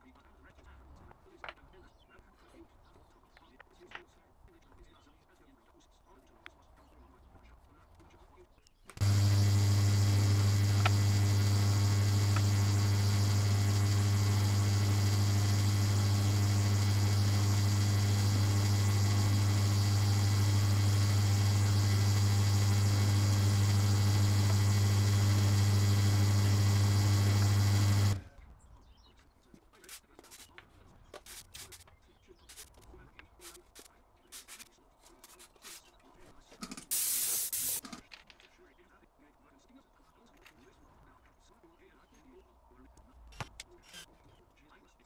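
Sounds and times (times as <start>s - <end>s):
drill bit drilling into wood: 9.0s - 28.2s
drill press motor hum: 9.0s - 28.3s.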